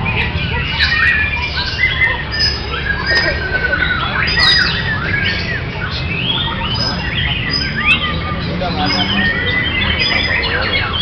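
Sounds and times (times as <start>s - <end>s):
songbird whistles and trills: 0.0s - 8.2s
other birds singing: 0.0s - 11.0s.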